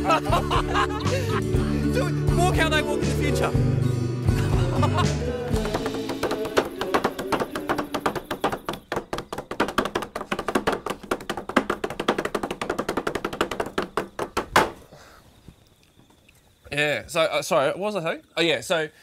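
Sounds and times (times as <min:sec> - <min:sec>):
loud knock: 0:05.6 - 0:14.8
shoes tapping on hard floor: 0:05.6 - 0:14.8.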